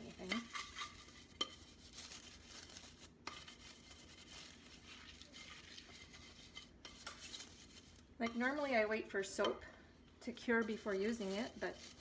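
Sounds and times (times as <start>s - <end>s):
brush scrubbing a glass dish: 0.0s - 8.8s, 10.4s - 12.0s.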